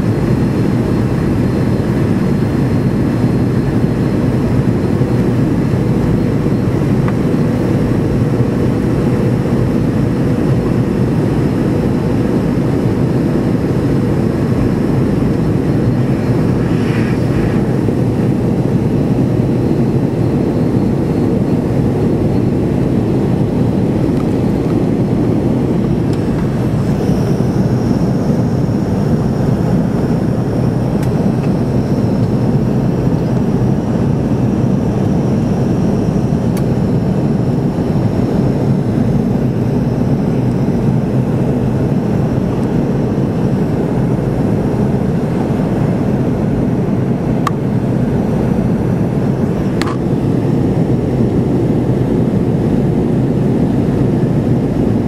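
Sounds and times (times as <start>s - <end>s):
jet engine roar in cabin: 0.0s - 55.0s.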